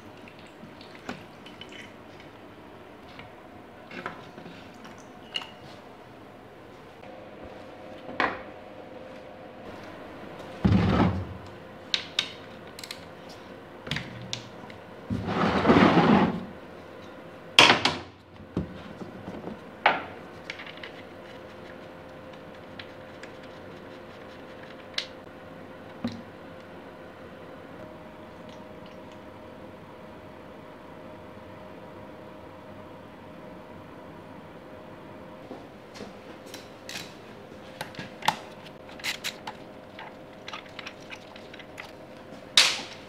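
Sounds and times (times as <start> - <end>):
faint steady hum: 0.0 - 43.0
rough scraping noises: 15.2 - 16.5.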